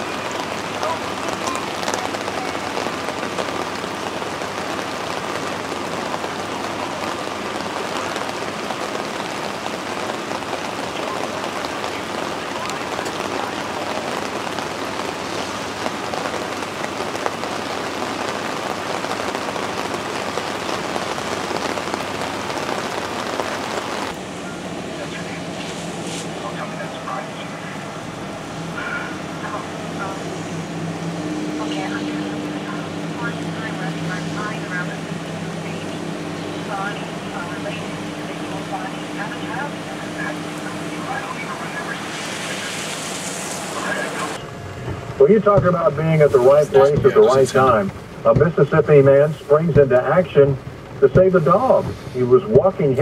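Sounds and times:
heavy rain drops ticking: 0.0s - 53.0s
waterfall rushing: 0.0s - 53.0s.

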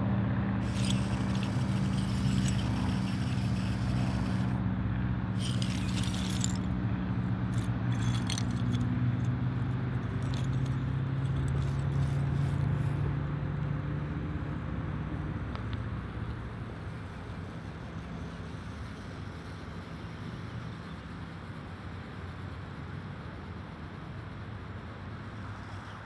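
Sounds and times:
wood shingles clicking and clattering: 0.6s - 4.5s, 5.4s - 6.7s, 7.6s - 8.9s, 10.0s - 12.2s
small electric motor whining: 0.6s - 4.6s, 5.4s - 6.7s, 7.5s - 8.8s.

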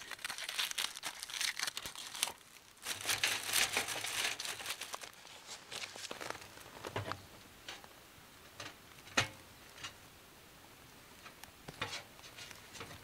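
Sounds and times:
small objects clicking and knocking: 0.0s - 5.1s.

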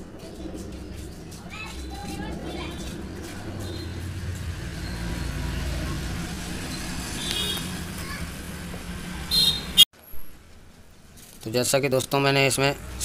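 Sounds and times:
low background rumble: 0.0s - 9.4s.

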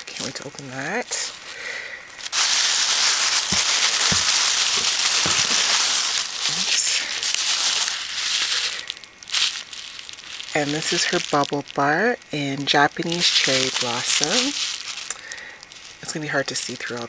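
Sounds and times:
packing paper and bubble wrap crinkling: 0.0s - 17.0s.

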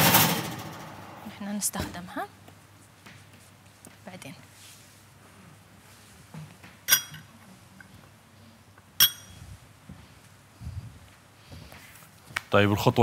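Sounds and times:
kitchenware clinking: 6.9s - 7.3s, 9.0s - 9.4s.

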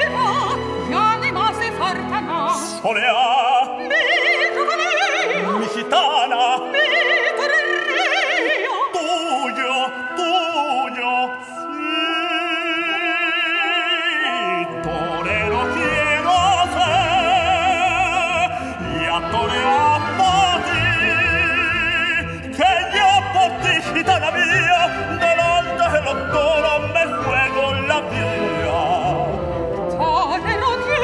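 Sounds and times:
soprano and tenor operatic duet: 0.0s - 31.0s
symphony orchestra: 0.0s - 31.0s.

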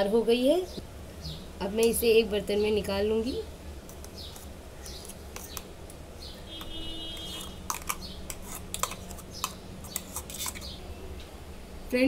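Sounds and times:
steady low hum: 0.0s - 12.0s
metal spoon scraping steel jar: 6.6s - 10.8s.

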